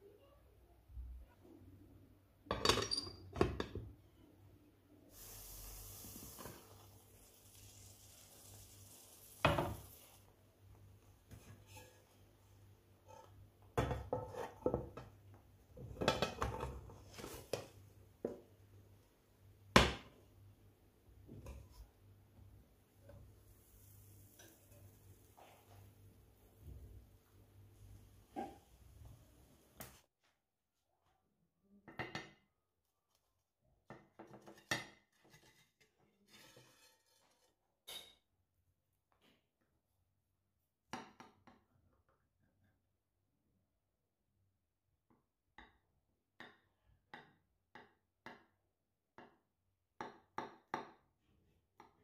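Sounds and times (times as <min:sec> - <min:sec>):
frying pans knocking and clattering: 0:34.0 - 0:35.6.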